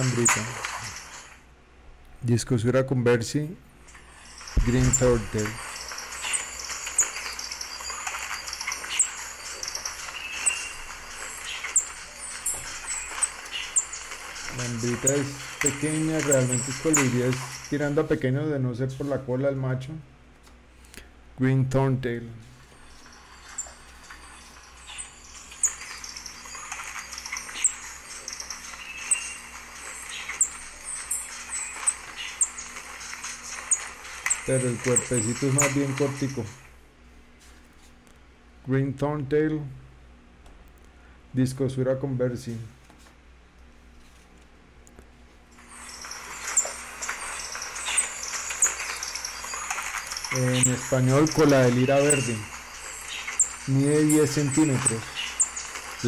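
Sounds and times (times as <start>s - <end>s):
hummingbird chip notes: 4.2s - 18.1s, 22.8s - 36.7s, 45.6s - 56.0s.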